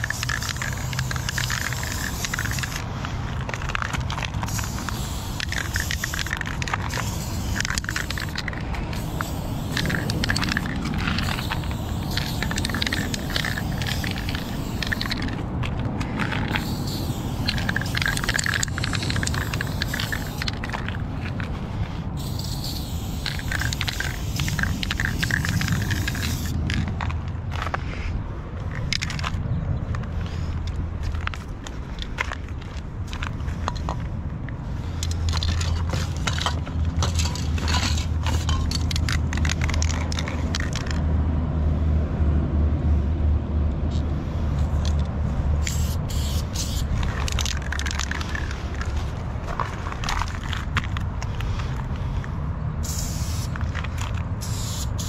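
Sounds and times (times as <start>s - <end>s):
spray paint can hissing: 0.0s - 27.1s, 34.8s - 41.0s, 44.6s - 52.2s, 52.8s - 55.0s.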